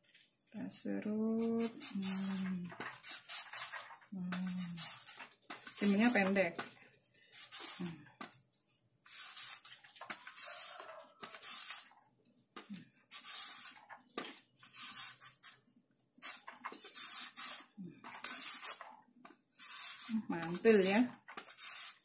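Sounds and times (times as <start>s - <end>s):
cucumber rasping on a grater: 1.3s - 3.8s, 4.4s - 6.3s, 7.4s - 8.0s, 9.1s - 11.9s, 12.7s - 13.9s, 14.6s - 15.6s, 16.2s - 18.9s, 19.5s - 22.0s.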